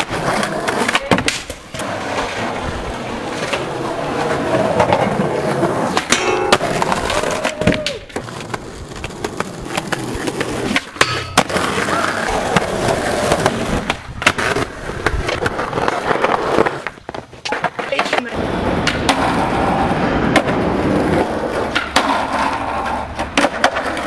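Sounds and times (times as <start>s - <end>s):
skateboard clacks and landing knocks: 0.0s - 24.0s
skateboard scrape: 0.0s - 24.0s
skateboard wheels rolling on concrete: 0.0s - 24.0s.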